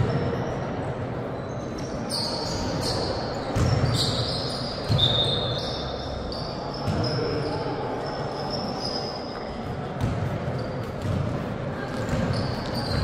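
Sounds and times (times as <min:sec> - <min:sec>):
shoes squeaking on floor: 0:01.4 - 0:11.2, 0:12.0 - 0:13.0
basketball bouncing: 0:03.5 - 0:03.9, 0:10.0 - 0:13.0.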